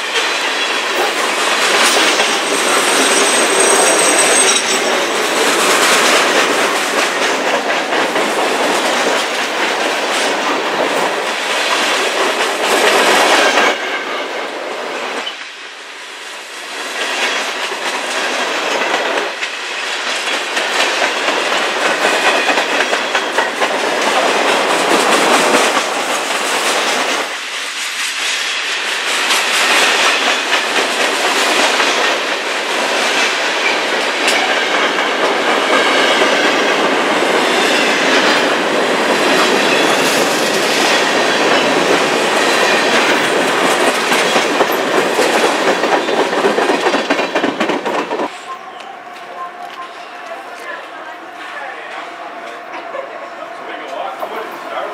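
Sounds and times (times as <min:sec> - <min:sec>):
steel wheels rolling on rails: 0:00.0 - 0:15.5, 0:16.2 - 0:54.9
wheels clicking over rail joints: 0:29.2 - 0:48.4.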